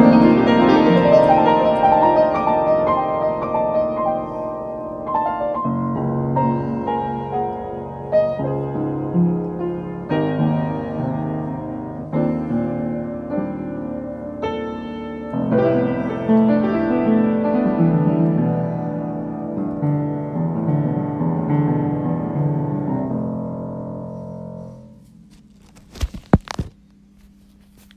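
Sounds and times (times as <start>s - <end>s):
piano music: 0.0s - 25.1s.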